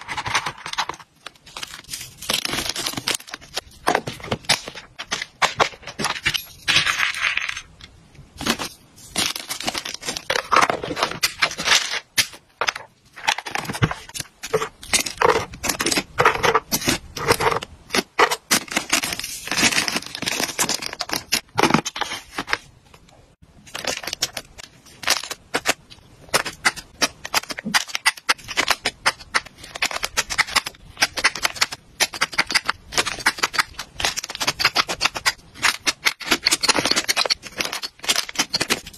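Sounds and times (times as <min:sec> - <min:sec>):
plastic bags crinkling: 0:08.4 - 0:12.0.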